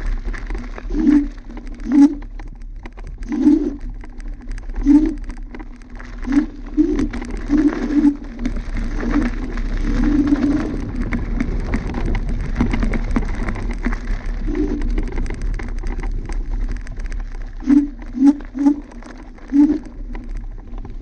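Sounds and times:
low steady hum: 0.0s - 21.0s
scooter rattling over bumps: 0.0s - 21.0s
tyres crackling on gravel: 0.0s - 21.0s.

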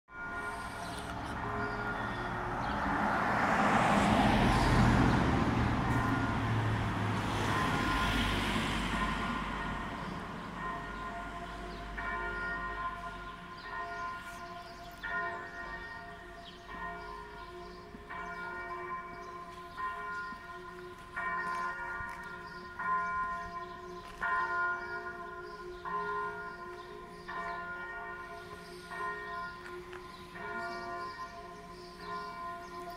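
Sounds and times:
church bells ringing: 0.1s - 32.9s
vehicle passing by: 2.1s - 10.4s.

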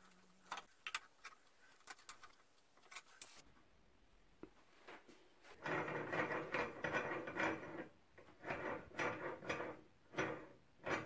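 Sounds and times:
metal nut rubbing over threads: 5.6s - 11.0s.

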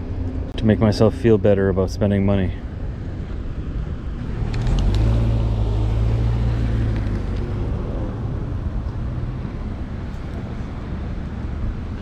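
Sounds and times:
car driving past: 4.2s - 10.9s.

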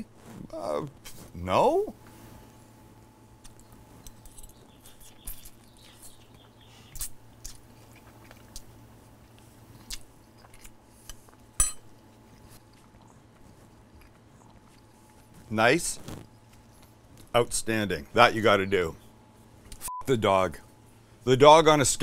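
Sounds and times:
man chewing: 3.4s - 15.4s
metal fork clinking on plate: 11.6s - 11.8s.

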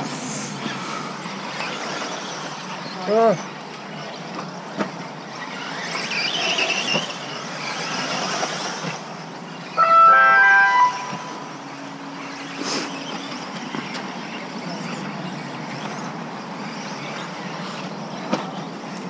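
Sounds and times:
electric motors whining: 0.0s - 19.0s
loud pitched tone: 9.8s - 11.7s.

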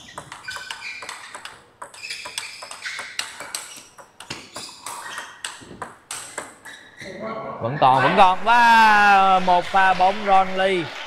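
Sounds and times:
table tennis ball hits: 0.0s - 6.7s.

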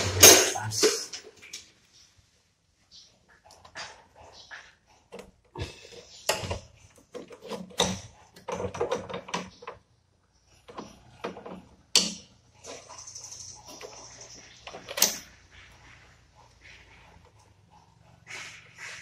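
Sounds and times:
wrenches clinking on metal nut: 10.7s - 15.4s.

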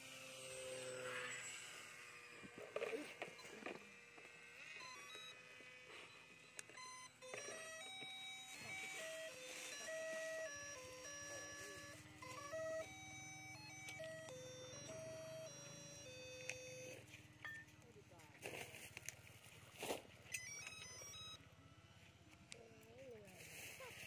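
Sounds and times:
electronic beeping melody: 2.8s - 17.7s, 20.3s - 21.4s.

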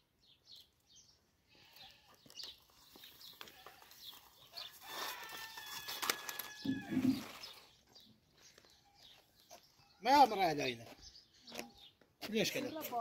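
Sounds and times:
small birds chirping: 0.0s - 13.0s
farm animal call: 3.4s - 7.6s.

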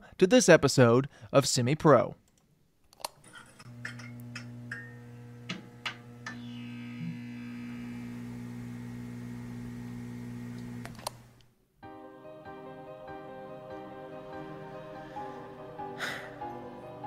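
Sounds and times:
low electrical hum: 3.6s - 11.5s.

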